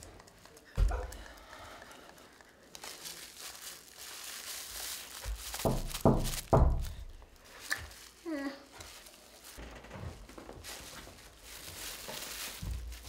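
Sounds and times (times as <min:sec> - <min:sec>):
plastic bag crinkling: 0:02.0 - 0:13.0
dull thumps: 0:05.2 - 0:07.2.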